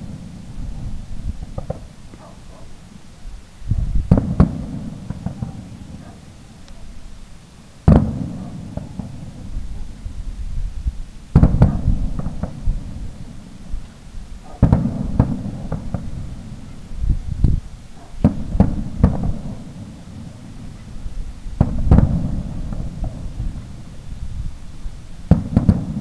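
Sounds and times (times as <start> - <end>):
firework shells booming: 0.0 - 2.5, 4.0 - 6.5, 7.8 - 10.0, 11.3 - 13.6, 14.4 - 16.9, 18.2 - 24.0, 25.2 - 26.0.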